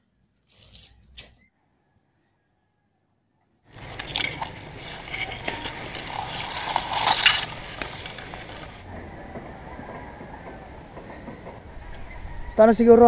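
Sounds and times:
grass rustling against camera: 3.7 - 8.9.

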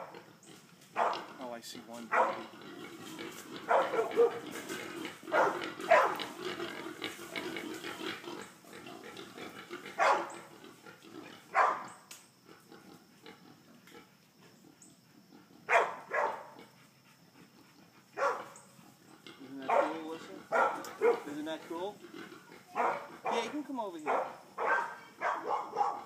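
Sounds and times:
hog calls: 0.0 - 12.2, 14.6 - 26.0
dog barking: 1.0 - 1.3, 2.1 - 2.5, 3.7 - 4.4, 5.3 - 6.3, 10.0 - 10.4, 11.5 - 11.9, 15.7 - 16.6, 18.2 - 18.6, 19.6 - 21.4, 22.7 - 26.0.

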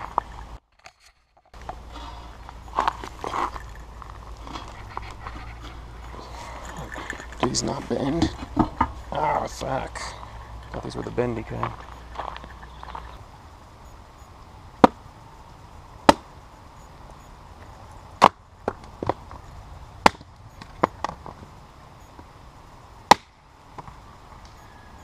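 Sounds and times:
axe chopping firewood: 14.8 - 15.0, 16.0 - 16.3, 18.2 - 19.2, 20.0 - 21.2, 23.1 - 23.4
wood splitting: 14.8 - 15.0, 16.1 - 16.3, 20.0 - 21.2, 23.1 - 23.4.

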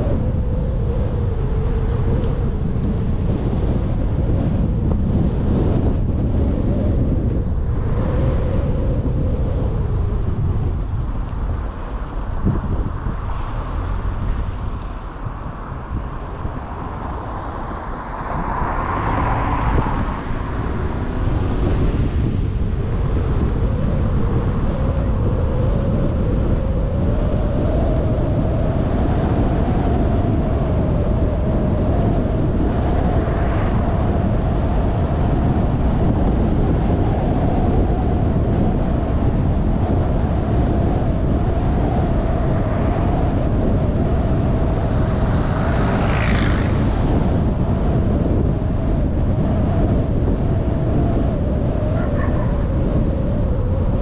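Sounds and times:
car road and engine noise: 0.0 - 54.0
rising whine: 38.2 - 54.0.

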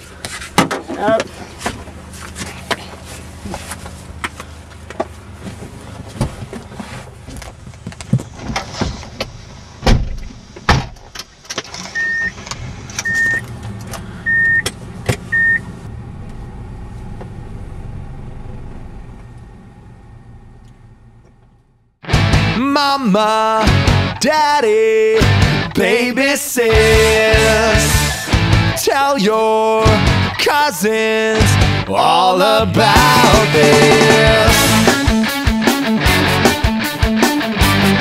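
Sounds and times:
rustling and clicks in car: 0.2 - 15.4
car door shutting: 8.2 - 15.4
short electronic beeps: 12.0 - 12.4, 13.0 - 13.4, 14.3 - 14.7, 15.3 - 15.6.

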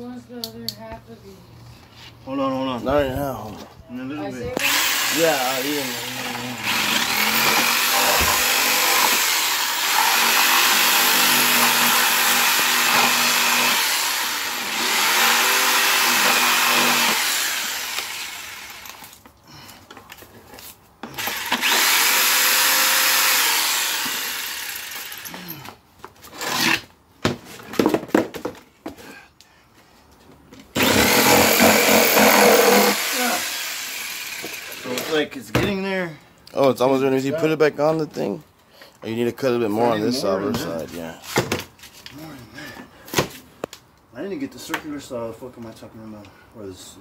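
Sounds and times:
jigsaw cutting plastic: 4.6 - 19.1, 21.1 - 25.2, 30.8 - 35.1.

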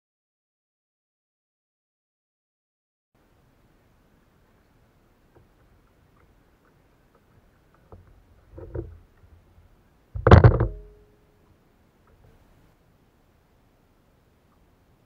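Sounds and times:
paddle knocking on plastic kayak: 10.2 - 11.0
short ringing: 10.6 - 11.3.

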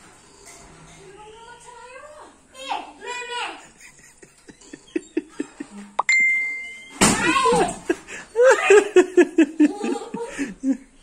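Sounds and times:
electronic doorbell tone: 6.0 - 6.9.

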